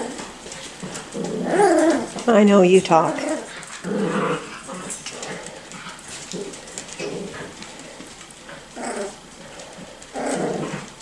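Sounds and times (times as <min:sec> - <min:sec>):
puppies whimpering and yipping: 0:01.2 - 0:02.3.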